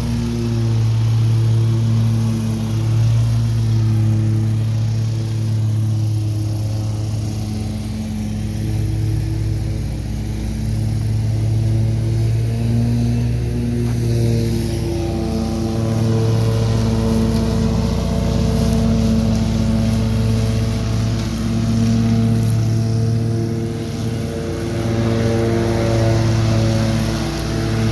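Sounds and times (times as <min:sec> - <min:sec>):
lawn mower engine running: 0:00.0 - 0:27.9.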